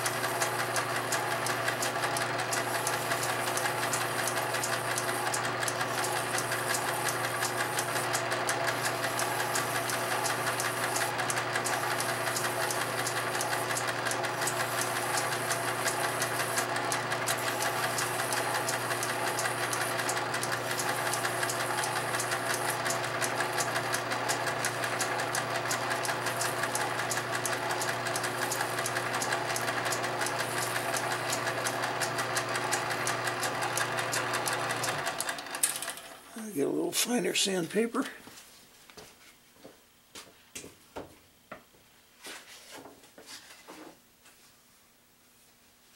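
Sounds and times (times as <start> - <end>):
lathe motor humming: 0.0 - 36.2
sandpaper on spinning wood: 8.8 - 11.1, 14.4 - 16.7, 17.3 - 22.8.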